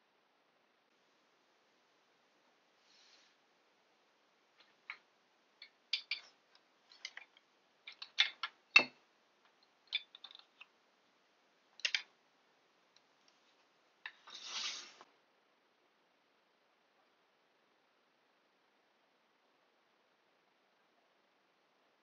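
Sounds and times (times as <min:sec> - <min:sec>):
wooden tools clicking: 0:05.6 - 0:10.7, 0:11.8 - 0:12.1.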